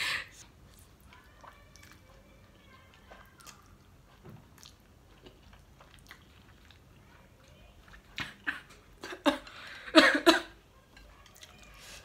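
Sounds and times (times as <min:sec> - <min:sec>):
quiet chewing with smacks: 0:00.4 - 0:09.0.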